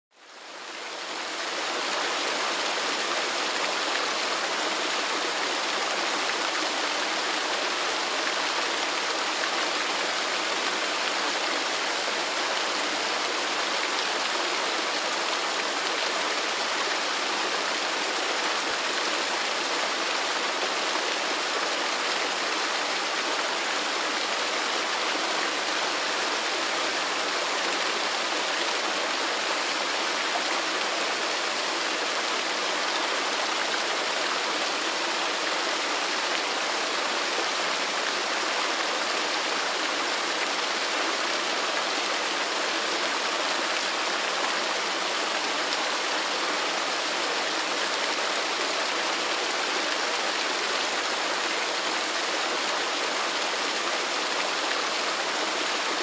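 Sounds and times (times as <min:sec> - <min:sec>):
waterfall rushing: 0:00.3 - 0:56.0.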